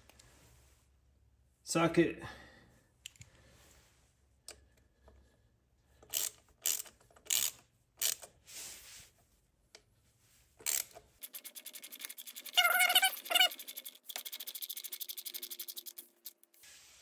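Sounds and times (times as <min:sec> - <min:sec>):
ratchet clicking: 0:06.0 - 0:08.3, 0:10.6 - 0:16.4.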